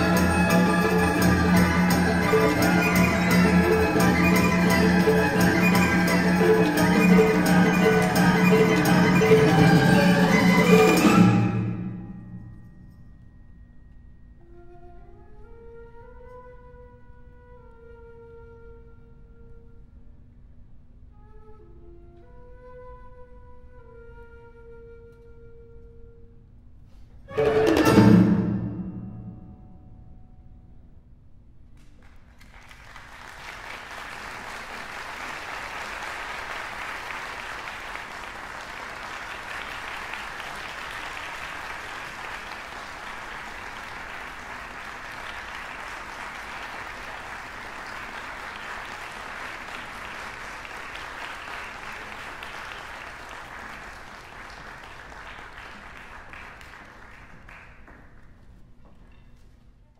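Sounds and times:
audience applauding: 32.0s - 58.4s.

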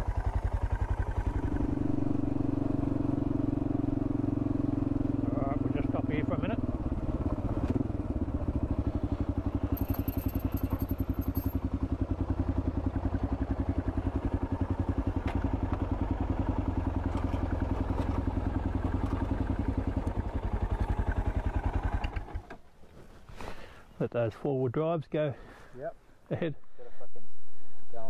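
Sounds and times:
motorcycle engine throbbing: 0.0s - 22.4s.

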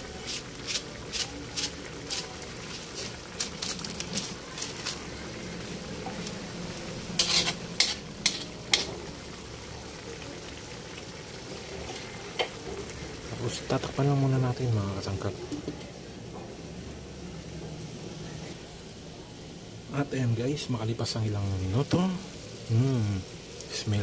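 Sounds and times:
stew simmering and sizzling: 0.0s - 24.0s.

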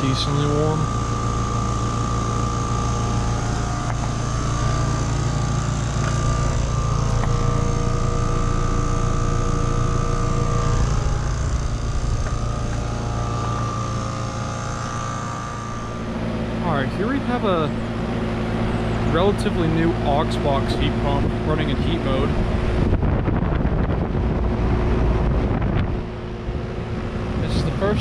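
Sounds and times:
steady high tone: 0.0s - 21.0s
heat pump low hum: 0.0s - 28.0s.

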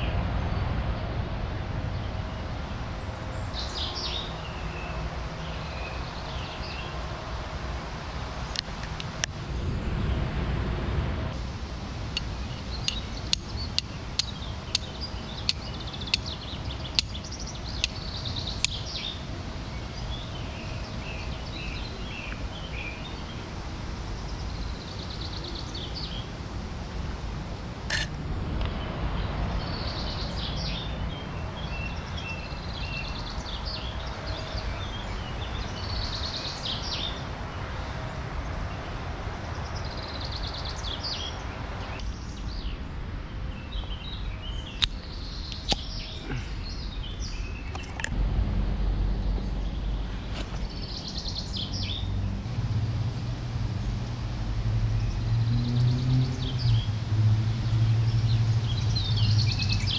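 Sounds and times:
birds singing: 2.0s - 9.4s, 12.0s - 27.2s, 27.8s - 48.2s, 49.2s - 54.3s, 54.9s - 59.9s
flint and steel clicks: 12.2s - 18.0s, 18.6s - 18.9s, 44.8s - 46.0s.

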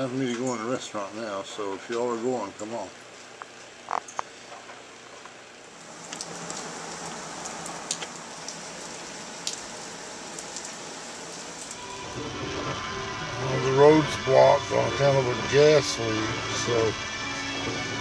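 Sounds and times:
rain pattering: 5.3s - 17.0s.

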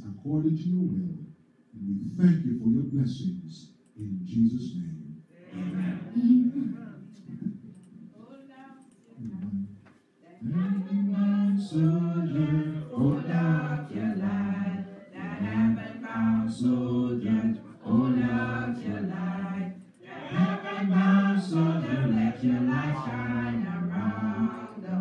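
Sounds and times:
congregation singing a hymn: 10.4s - 25.0s.

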